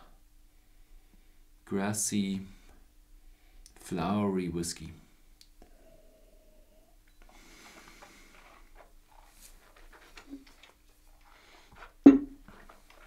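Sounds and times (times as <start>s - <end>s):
sharp knock: 12.1s - 12.4s.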